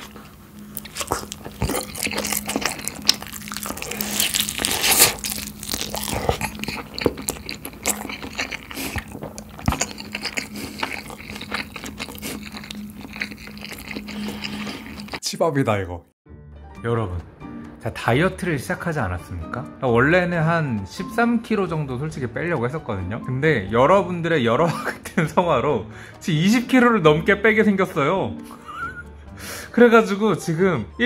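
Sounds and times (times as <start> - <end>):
crunching and chewing fried chicken: 0.0 - 15.2.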